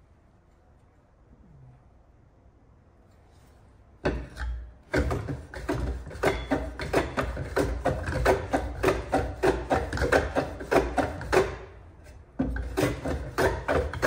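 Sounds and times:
plane rasping over wood: 5.2 - 11.6.

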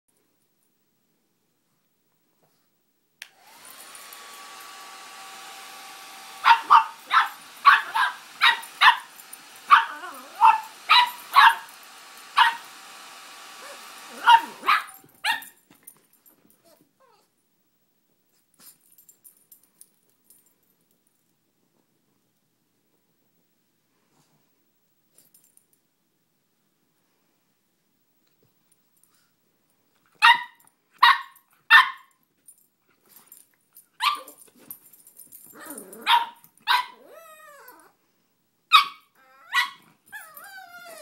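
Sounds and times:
hair dryer blowing with a whine: 3.2 - 15.2
puppy barking sharply: 6.4 - 11.7, 12.3 - 12.7, 13.6 - 15.6, 30.2 - 32.1, 36.0 - 37.0, 38.7 - 39.8.

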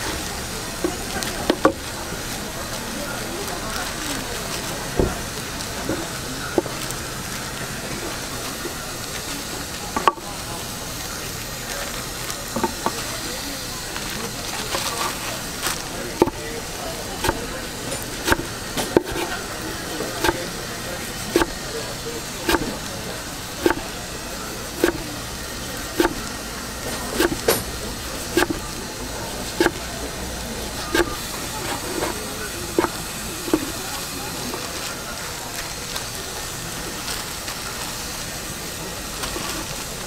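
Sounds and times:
knife chopping on wooden board: 16.2 - 16.4, 17.2 - 17.5, 18.1 - 19.4, 20.1 - 20.5, 21.3 - 21.5, 22.4 - 22.8, 23.6 - 23.9, 24.8 - 25.1, 26.0 - 26.3, 27.0 - 27.7, 28.3 - 28.7, 29.5 - 29.8, 30.9 - 33.7.

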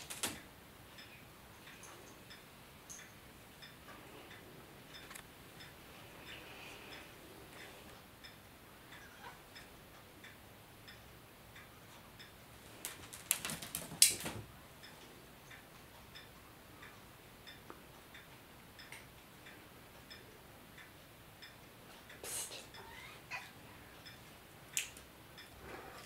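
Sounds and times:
clock ticking: 0.0 - 13.4, 14.4 - 26.0
sharp clattering and rustling: 12.8 - 14.5.

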